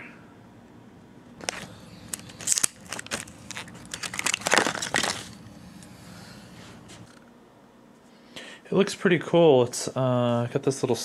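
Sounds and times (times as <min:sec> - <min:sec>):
plastic packaging crackling: 0:01.4 - 0:06.0.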